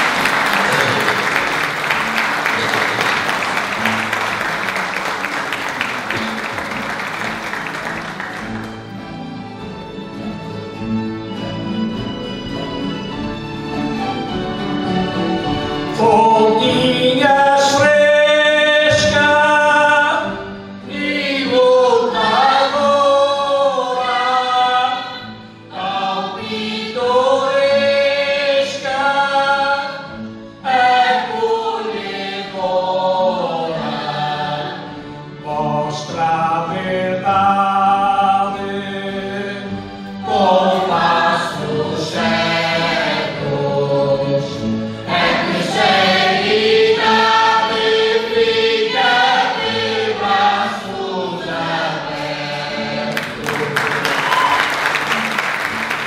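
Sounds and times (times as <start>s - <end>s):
musical accompaniment: 0.0s - 56.0s
group of voices singing: 16.0s - 55.2s.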